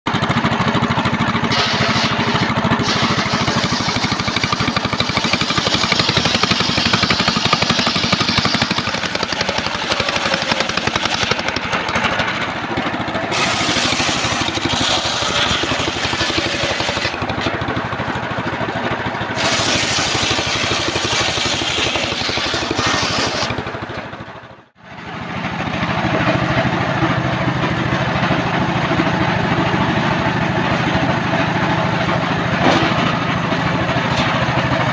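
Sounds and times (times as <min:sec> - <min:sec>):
chainsaw running: 0:00.1 - 0:24.6
table saw cutting logs: 0:00.1 - 0:24.6.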